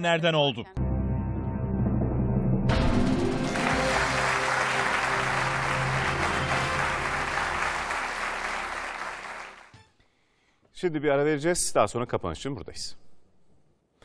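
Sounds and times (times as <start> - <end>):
music: 0.8 - 10.0
audience applauding: 2.7 - 9.7.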